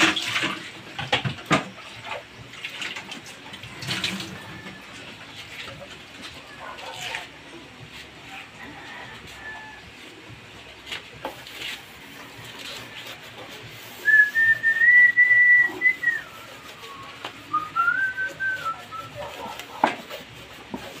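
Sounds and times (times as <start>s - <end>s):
person whistling: 14.0s - 19.1s.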